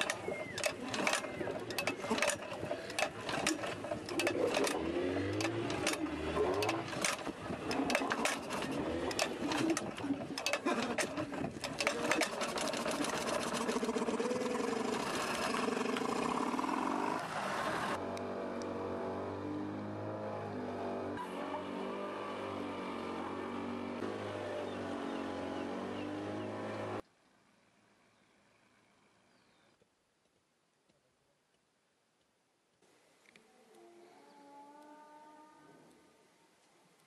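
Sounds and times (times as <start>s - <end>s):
starter rope pull: 0.0s - 16.8s
outboard motor sputtering: 0.0s - 18.0s
steady engine drone: 0.0s - 27.0s.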